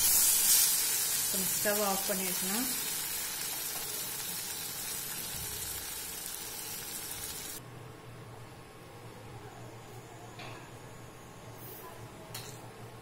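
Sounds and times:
masala sizzling in a pot: 0.0s - 7.6s.

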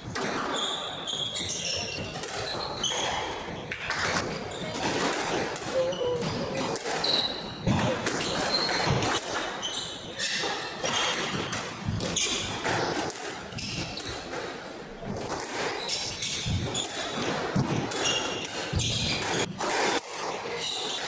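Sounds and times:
squash ball smacking rackets and walls: 0.0s - 21.0s
shoe soles squeaking on wooden floor: 0.5s - 4.8s, 5.4s - 11.1s.

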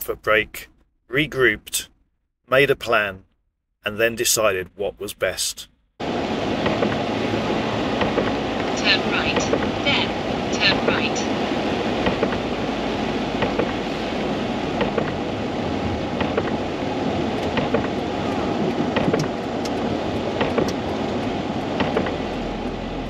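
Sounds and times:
low engine hum: 6.0s - 23.0s
road and tyre noise: 6.0s - 23.0s.

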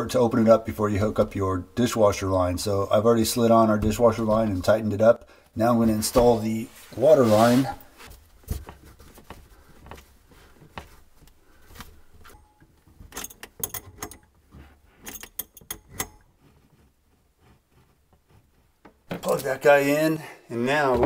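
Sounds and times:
metal wrench clicking and clinking: 13.1s - 14.3s, 15.0s - 16.2s.

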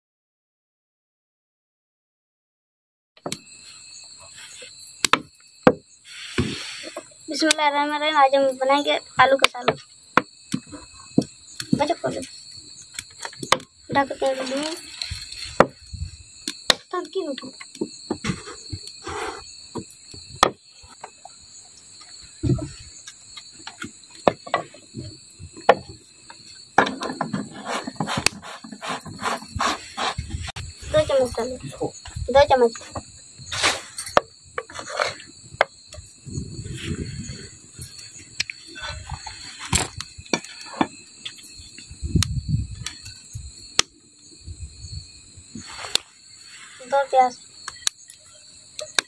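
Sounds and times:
crickets chirping: 3.2s - 49.0s.

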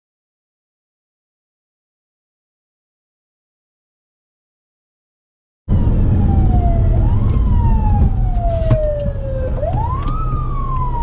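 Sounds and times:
emergency siren wailing: 5.7s - 11.0s
steady low rumble: 5.7s - 11.0s.

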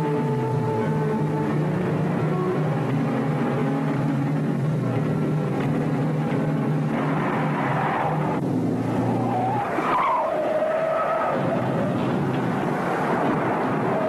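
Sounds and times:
car engine running: 0.0s - 14.0s
tyres squealing: 9.1s - 11.9s.

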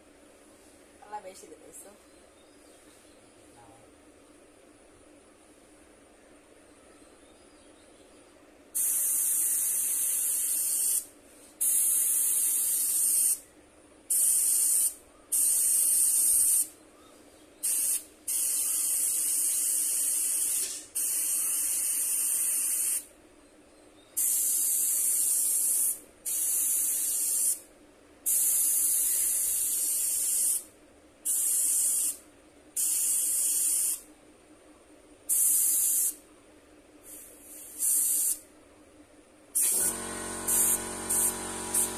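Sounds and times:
airbrush spraying hiss: 8.8s - 13.4s, 14.1s - 16.7s, 17.6s - 23.1s, 24.2s - 27.6s, 28.2s - 32.2s, 32.8s - 34.0s, 35.3s - 36.2s, 37.0s - 38.4s, 39.6s - 41.9s.

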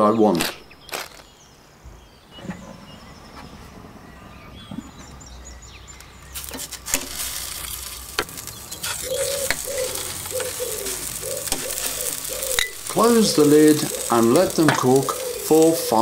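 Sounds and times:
hot grill hissing: 6.2s - 16.0s
metal tongs clinking on grill: 6.4s - 15.9s.

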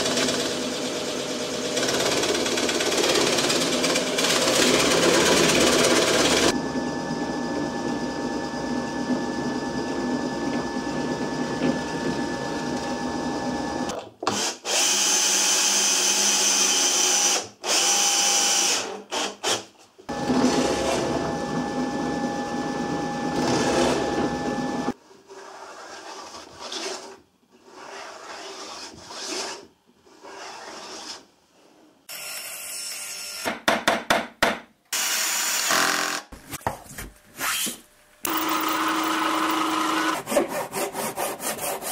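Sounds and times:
drill press boring wood: 0.0s - 6.6s, 9.0s - 25.0s, 38.3s - 41.8s
cordless drill driving screws: 38.3s - 40.2s.

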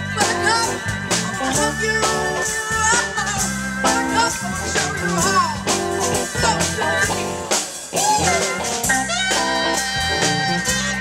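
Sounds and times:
live band playing: 0.0s - 11.0s
woman singing: 9.0s - 11.0s.

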